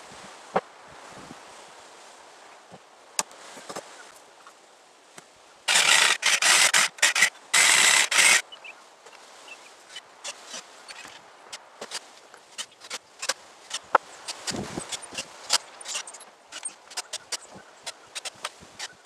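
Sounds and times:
saw cutting wood: 5.7 - 8.4, 12.6 - 19.0.

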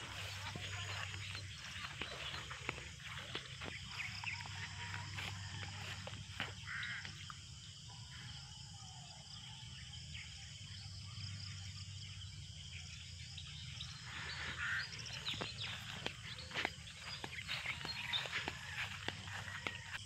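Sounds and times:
grass and brush rustling: 0.0 - 7.3, 13.9 - 20.0
insects chirring: 0.0 - 20.0.

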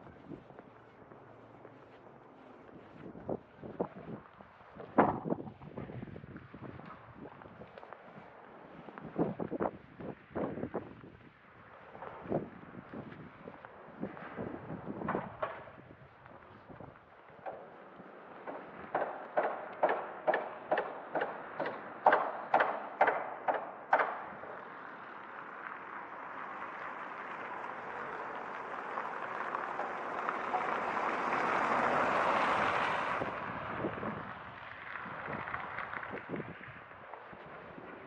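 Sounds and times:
footsteps on pavement: 0.0 - 20.1, 24.6 - 38.0
car passing: 11.4 - 38.0.

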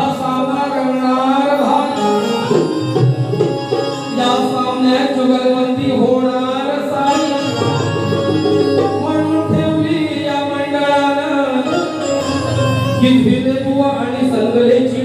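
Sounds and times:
man singing: 0.0 - 2.8, 4.1 - 15.0
hand drum: 2.3 - 4.5, 7.4 - 10.2.

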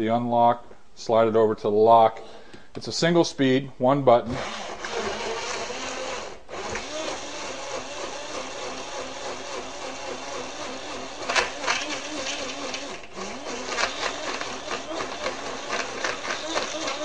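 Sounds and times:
blender motor running in pulses: 4.3 - 17.0.

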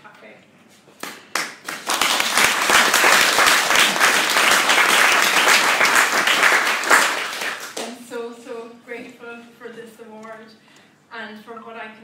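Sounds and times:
audience applauding: 1.1 - 7.9.

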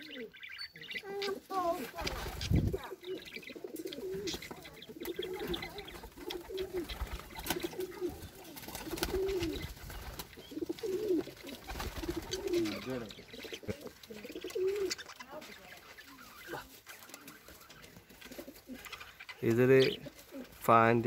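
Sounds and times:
pigeons cooing: 0.0 - 20.6.

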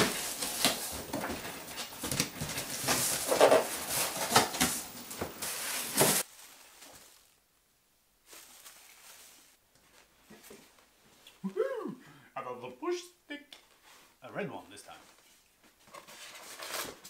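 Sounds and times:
paper packing rustling: 0.0 - 7.4, 8.2 - 10.7, 15.8 - 17.0.

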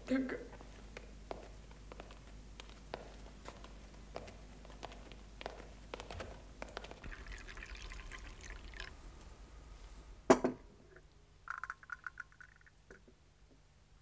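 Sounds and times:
coffee pouring into a cup: 7.0 - 13.2.

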